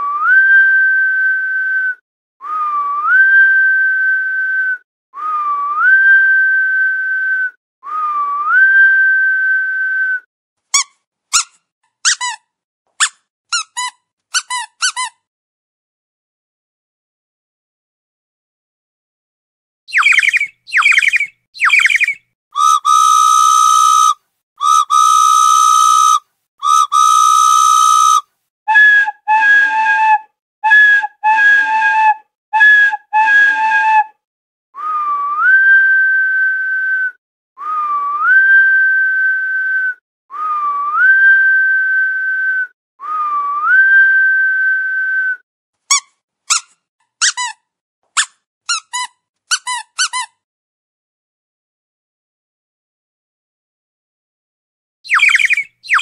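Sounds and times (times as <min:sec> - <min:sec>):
whistle chirps and toots: 0:00.0 - 0:10.3, 0:19.9 - 0:34.2, 0:34.8 - 0:46.7, 0:55.1 - 0:56.0.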